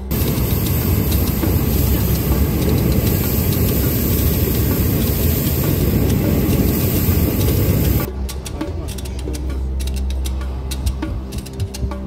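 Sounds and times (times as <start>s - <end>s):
propane burner roaring: 0.0s - 8.1s.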